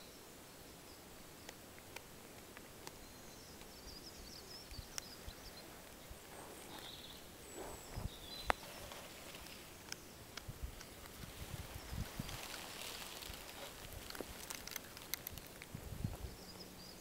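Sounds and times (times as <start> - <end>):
cat chewing and crunching: 12.1 - 15.8
sharp crack: 12.2 - 15.8.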